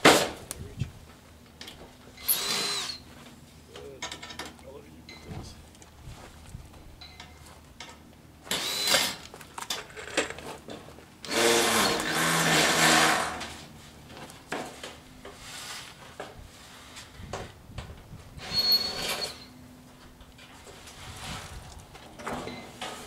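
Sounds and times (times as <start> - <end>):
cordless drill running: 2.2 - 3.0, 8.5 - 9.2, 11.2 - 13.4.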